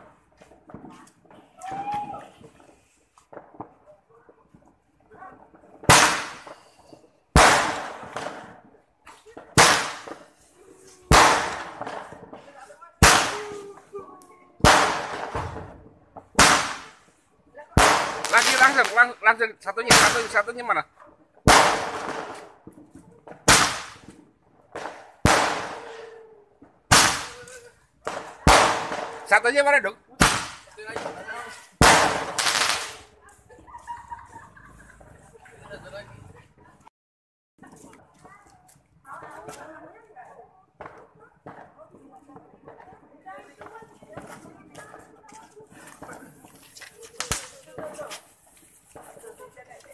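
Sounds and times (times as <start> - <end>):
roman candle firework bangs: 5.5 - 14.0, 14.6 - 20.8, 21.4 - 33.1, 46.0 - 48.3.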